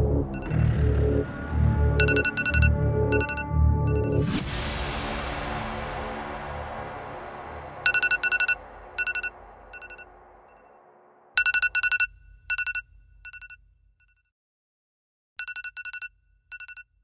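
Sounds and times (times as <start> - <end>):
music: 0.0 - 11.0
alarm clock beeping: 0.3 - 0.6, 2.0 - 4.2, 7.8 - 10.7, 11.4 - 13.6, 15.4 - 16.8.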